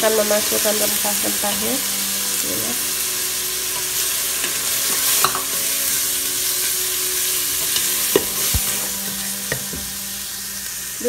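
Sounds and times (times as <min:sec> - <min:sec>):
onions sizzling in hot oil: 0:00.0 - 0:11.0
spatula scraping metal pot: 0:03.7 - 0:06.0, 0:07.5 - 0:09.9.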